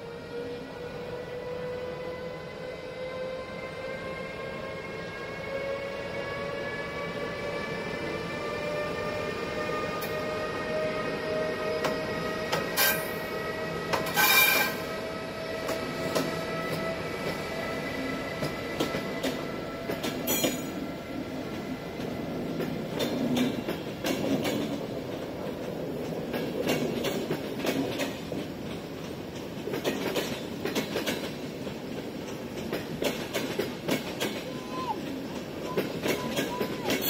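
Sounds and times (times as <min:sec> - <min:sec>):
electric locomotive whine: 0:00.0 - 0:37.0
train rumbling past: 0:00.0 - 0:37.0
wheels clacking over rail joints: 0:18.4 - 0:20.8, 0:21.6 - 0:37.0.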